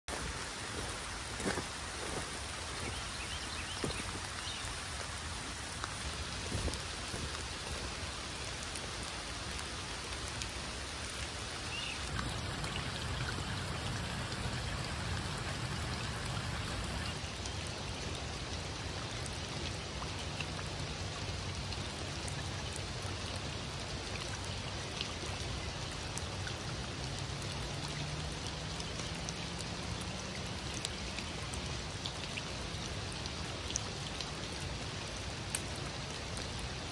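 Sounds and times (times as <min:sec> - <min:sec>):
footsteps crunching on gravel: 0:00.1 - 0:03.0
steady rain falling: 0:00.1 - 0:36.9.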